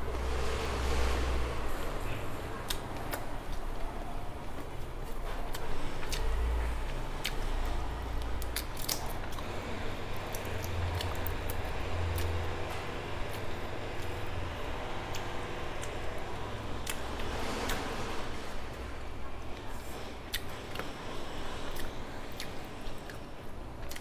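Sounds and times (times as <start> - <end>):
chewing: 2.0 - 14.3, 19.5 - 21.0, 21.7 - 24.0.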